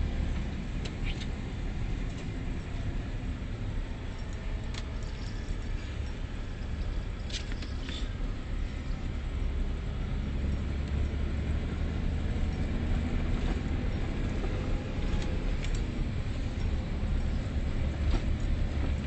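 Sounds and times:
road and cab noise: 0:00.0 - 0:19.0
truck diesel engine from inside cab: 0:00.0 - 0:19.0
light rattles: 0:04.0 - 0:09.1.

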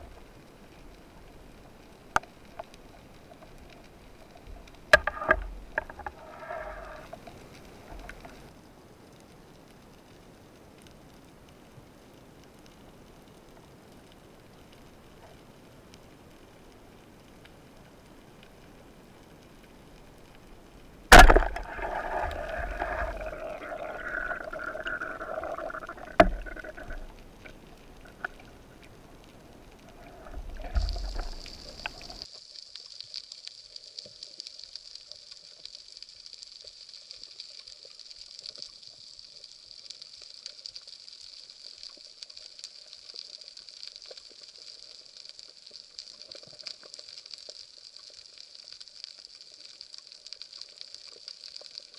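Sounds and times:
steady high hiss: 0:00.0 - 0:38.1
sharp knock underwater: 0:21.1 - 0:23.4, 0:26.1 - 0:26.7
churning water: 0:21.1 - 0:27.4.

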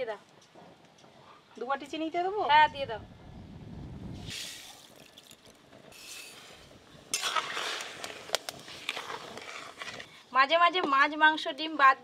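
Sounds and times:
sugar pouring into wok: 0:04.2 - 0:10.0.

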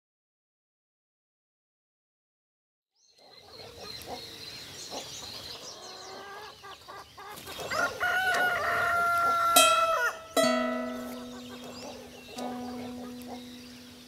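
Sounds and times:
small birds chirping: 0:03.0 - 0:14.0
rooster crowing: 0:07.7 - 0:12.1.

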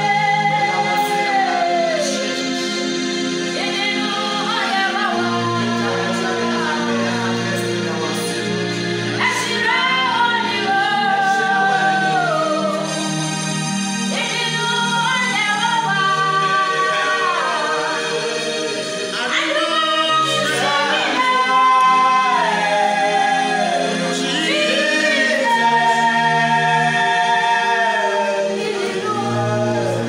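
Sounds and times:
group singing worship song: 0:00.0 - 0:13.3, 0:14.1 - 0:30.0.

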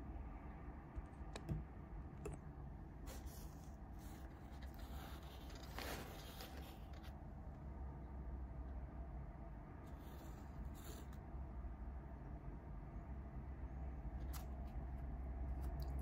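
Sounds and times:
paper wrapper crinkling: 0:04.3 - 0:07.2.

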